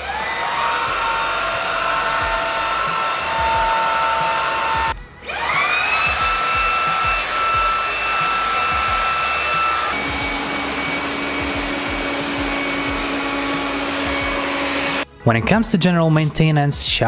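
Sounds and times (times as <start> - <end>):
robot vacuum humming: 0.0 - 15.0
stick vacuum motor whine: 0.0 - 15.1.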